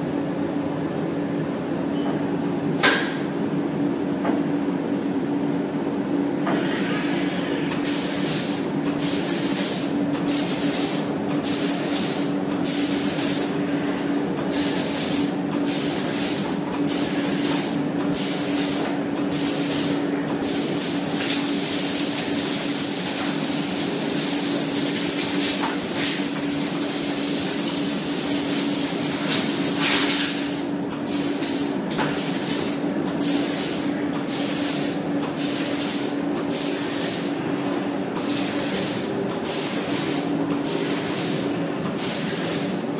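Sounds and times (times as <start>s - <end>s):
spray gun hissing: 7.8s - 13.5s, 14.5s - 37.4s, 38.2s - 42.9s.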